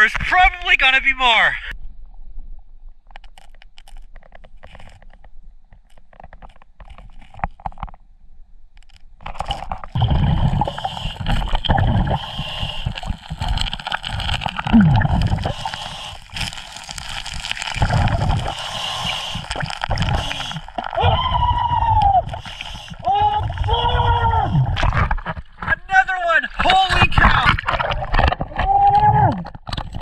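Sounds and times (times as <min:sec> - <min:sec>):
small stones clicking: 0:08.8 - 0:25.8
scuba regulator bubbles gurgling: 0:10.0 - 0:25.7
steady hiss of water: 0:10.2 - 0:13.4, 0:15.4 - 0:16.4, 0:17.8 - 0:20.8, 0:22.3 - 0:23.1.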